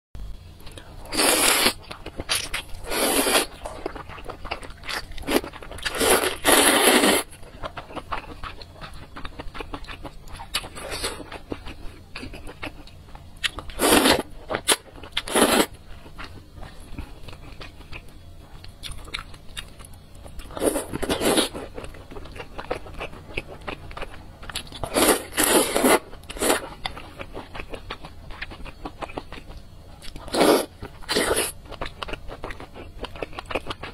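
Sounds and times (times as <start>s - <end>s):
quiet chewing: 3.2s - 13.8s.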